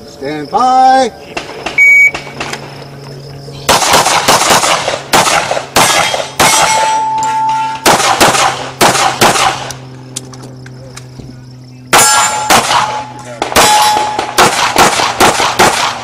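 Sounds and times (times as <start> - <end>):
handgun shots with echo: 3.7 - 7.1, 7.8 - 9.8, 11.9 - 16.0.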